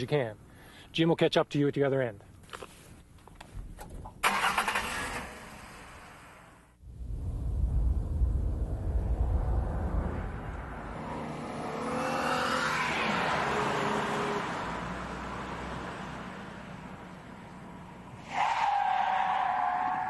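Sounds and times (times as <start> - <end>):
car accelerating past: 8.3 - 16.2
tyres squealing in a skid: 18.2 - 20.0.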